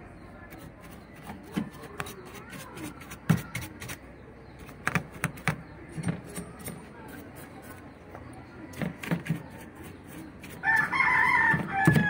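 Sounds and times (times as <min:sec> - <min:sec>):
bristle brush scrubbing circuit board: 0:00.6 - 0:04.1.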